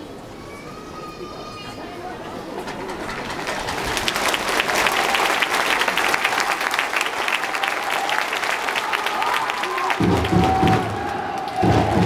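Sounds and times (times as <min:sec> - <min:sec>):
crowd applauding: 0:02.9 - 0:12.0.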